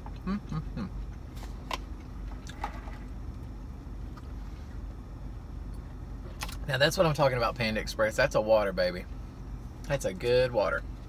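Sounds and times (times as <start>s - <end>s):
person humming mmm: 0.2s - 1.0s.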